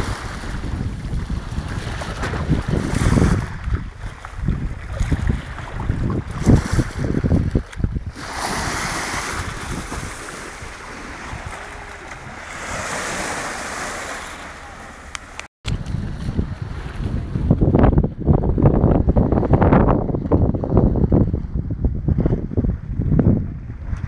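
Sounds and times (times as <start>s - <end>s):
small waves washing on shore: 0.0s - 17.5s
wind buffeting microphone: 0.0s - 24.0s.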